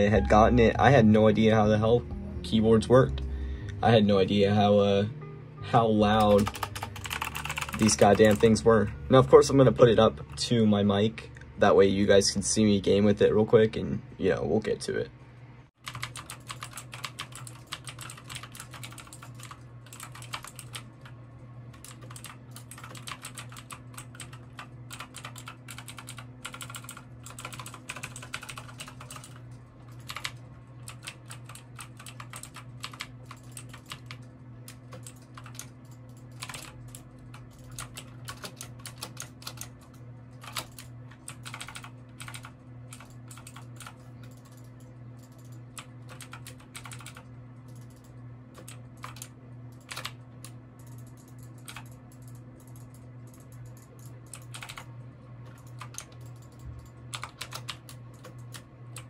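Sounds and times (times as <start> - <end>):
mechanical keyboard keys clacking: 6.1 - 8.6, 15.8 - 21.0, 21.8 - 39.8, 40.4 - 50.2, 50.8 - 54.9, 55.5 - 59.0.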